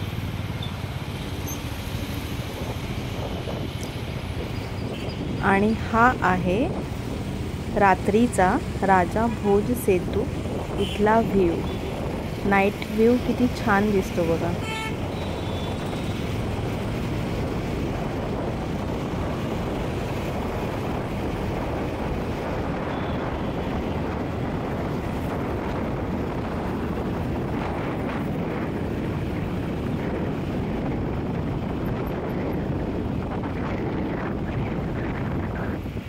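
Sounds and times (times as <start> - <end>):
road traffic noise: 0.0 - 36.0
wind on microphone: 1.2 - 36.0.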